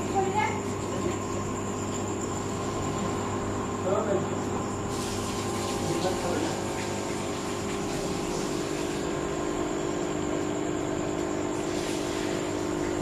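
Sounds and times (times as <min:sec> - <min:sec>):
air pump humming: 0:00.0 - 0:13.0
bubbles hissing: 0:04.6 - 0:09.6, 0:11.5 - 0:13.0.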